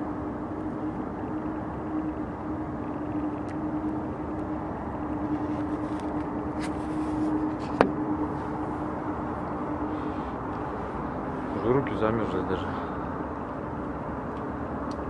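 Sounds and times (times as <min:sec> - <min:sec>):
motor vehicle humming: 0:00.0 - 0:15.0
rushing background noise: 0:00.0 - 0:15.0.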